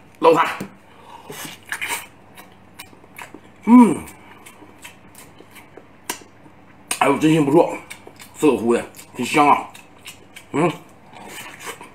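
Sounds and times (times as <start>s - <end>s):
wet chewing and smacking: 1.4s - 11.9s
man humming: 3.6s - 4.2s.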